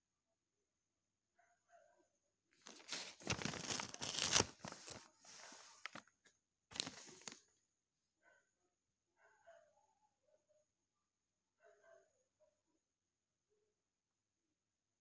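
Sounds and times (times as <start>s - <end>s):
paper rustling: 2.6s - 7.4s.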